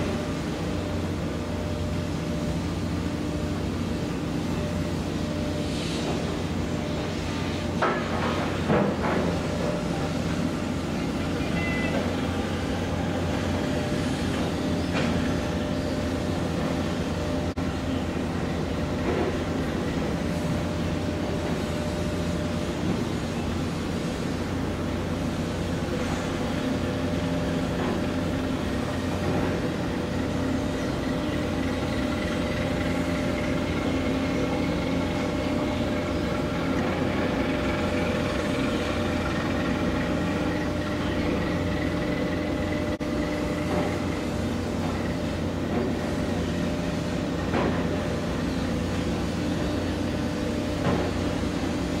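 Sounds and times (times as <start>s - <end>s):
diesel engines humming: 0.0s - 52.0s
faint high whine: 11.0s - 12.6s.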